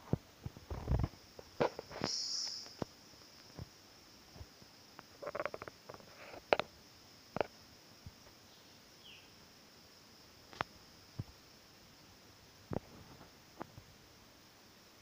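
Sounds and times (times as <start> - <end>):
steady high hiss: 0.0 - 15.0
faint falling chirp: 1.9 - 2.9.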